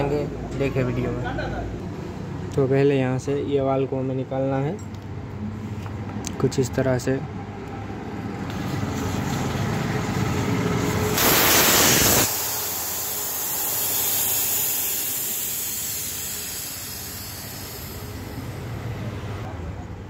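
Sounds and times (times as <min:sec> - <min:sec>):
air hissing from tyre valve: 0:11.1 - 0:18.9.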